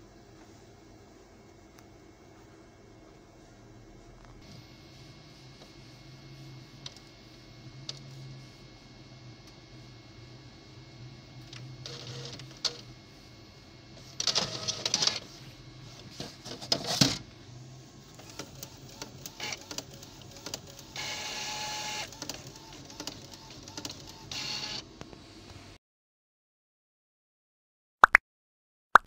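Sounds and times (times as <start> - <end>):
inkjet printer whirring and clicking: 4.4 - 25.0.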